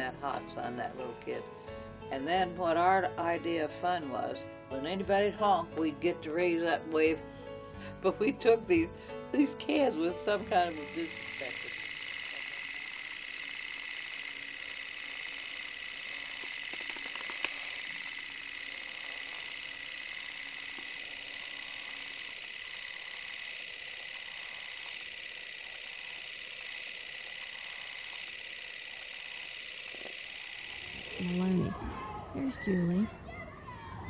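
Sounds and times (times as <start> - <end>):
sharp click: 16.4 - 17.7.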